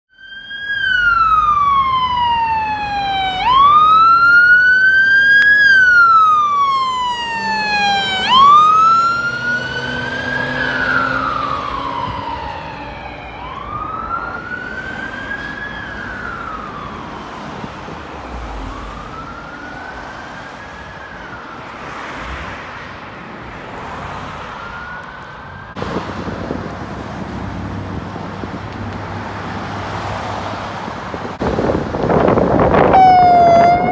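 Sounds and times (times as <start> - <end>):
fire truck siren wailing: 0.1 - 22.2, 23.9 - 30.4, 31.3 - 33.9
steady traffic: 0.1 - 33.9
wind noise: 25.7 - 29.3, 30.6 - 33.9.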